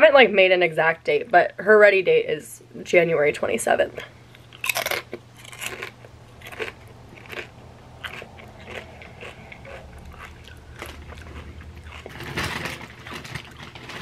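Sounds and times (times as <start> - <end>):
chip crunching while chewing: 4.3 - 14.0.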